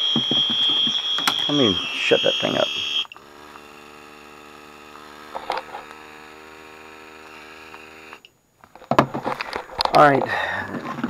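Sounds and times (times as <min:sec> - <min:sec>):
small electric motor humming: 0:00.0 - 0:08.3.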